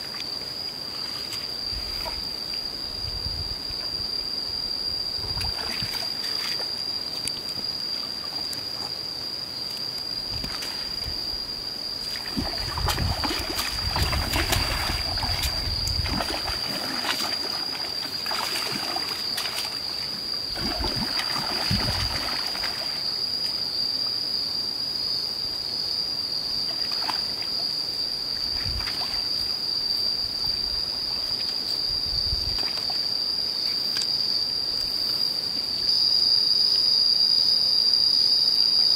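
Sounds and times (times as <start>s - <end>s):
high-pitched insect drone: 0.0s - 38.9s
fish thrashing and splashing: 12.2s - 19.8s.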